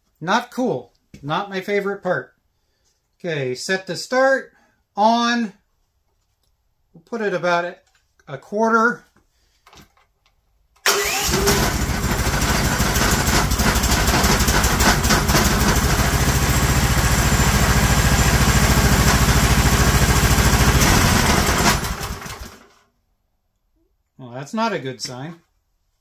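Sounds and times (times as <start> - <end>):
gas engine running: 10.9 - 22.6.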